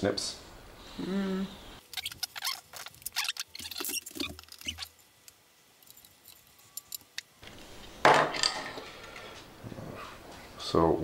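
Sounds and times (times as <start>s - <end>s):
wires clicking and rustling: 1.9s - 7.6s.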